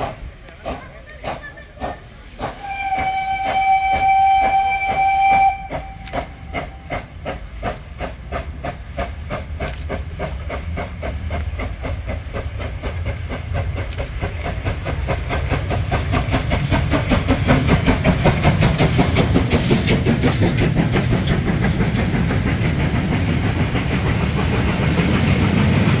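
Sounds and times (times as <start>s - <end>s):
low train rumble: 0.0s - 26.0s
steam locomotive chuffing: 0.0s - 26.0s
steam whistle blast: 2.6s - 6.9s.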